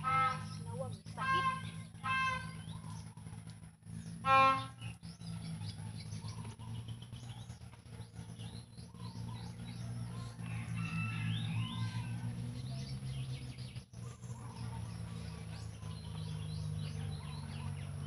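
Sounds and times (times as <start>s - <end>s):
goose honking: 0.0s - 2.8s, 4.2s - 4.9s
small birds chirping: 0.0s - 18.0s
steady low hum: 0.0s - 18.0s.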